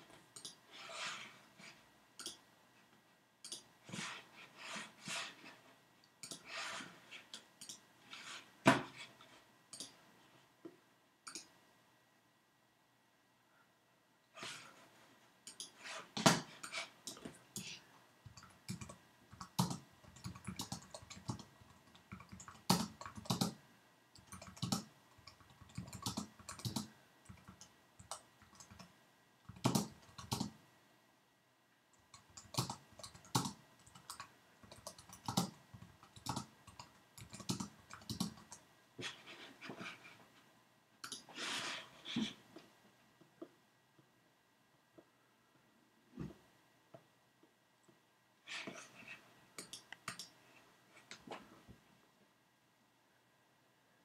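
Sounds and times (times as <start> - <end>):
typing on computer keyboard: 18.3 - 23.6, 24.2 - 28.9, 29.5 - 30.6, 32.0 - 38.6.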